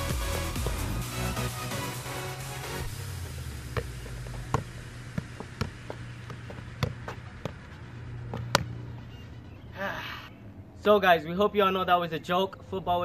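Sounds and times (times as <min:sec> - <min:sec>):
steady low hum: 0:00.0 - 0:13.0
ball thudding off foot: 0:03.6 - 0:08.8.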